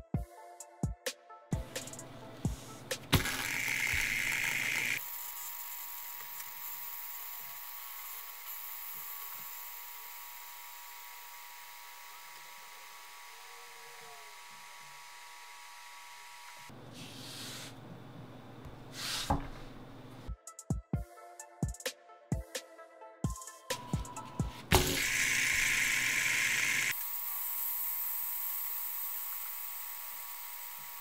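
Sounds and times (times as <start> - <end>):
fidget spinner whirring: 3.0 - 15.6, 23.8 - 31.0.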